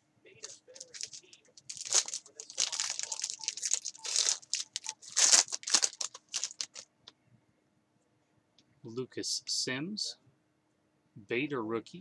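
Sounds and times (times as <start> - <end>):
foil wrapper tearing and crinkling: 0.4 - 6.8.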